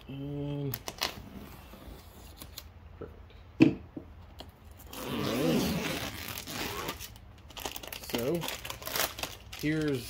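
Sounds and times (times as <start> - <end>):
packaging rustling and tearing: 4.8 - 10.0.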